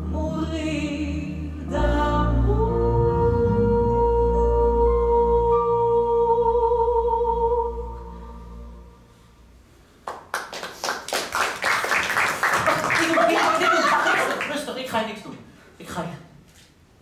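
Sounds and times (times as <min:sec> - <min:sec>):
audience applause: 0:10.0 - 0:14.8.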